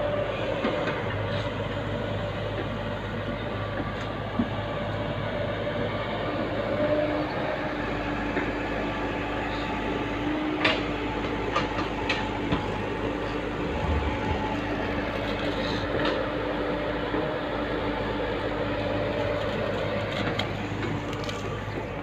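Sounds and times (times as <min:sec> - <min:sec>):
excavator diesel engine running: 0:00.0 - 0:22.0.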